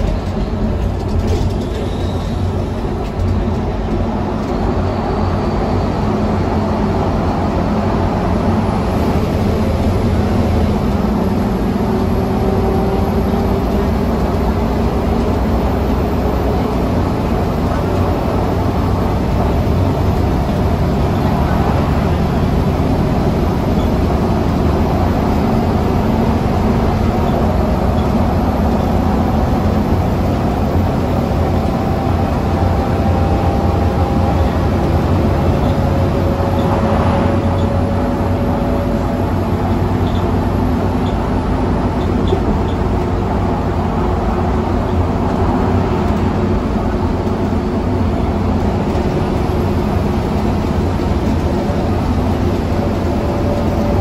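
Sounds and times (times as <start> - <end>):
bus engine drone: 0.0 - 54.0.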